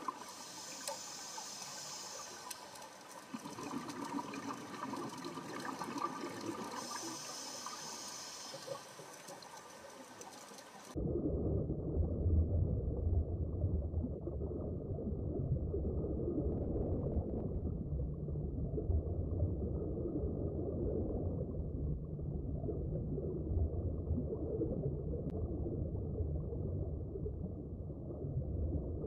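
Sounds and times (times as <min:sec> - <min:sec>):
muffled underwater rumble: 0:00.0 - 0:29.0
diver's exhaled bubbles: 0:10.9 - 0:29.0.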